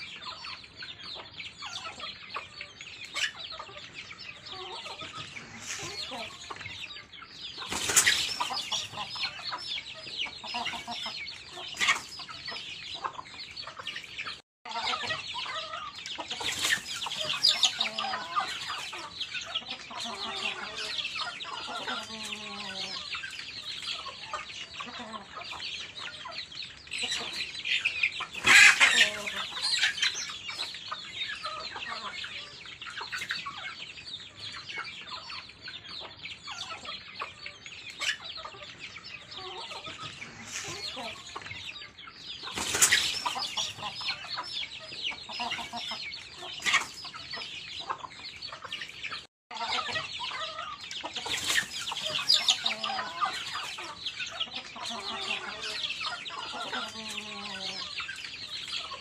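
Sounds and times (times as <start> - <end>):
chicks peeping: 0.0 - 59.0
hens clucking: 0.0 - 59.0.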